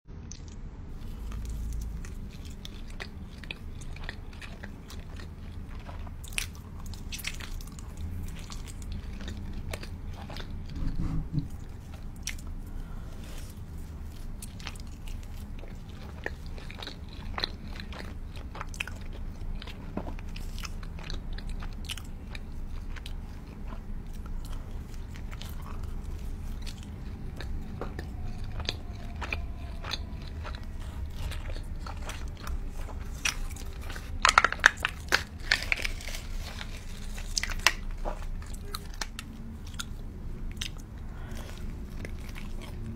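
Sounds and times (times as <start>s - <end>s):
wet chewing: 0.3s - 42.9s
crust crackling: 23.6s - 39.2s.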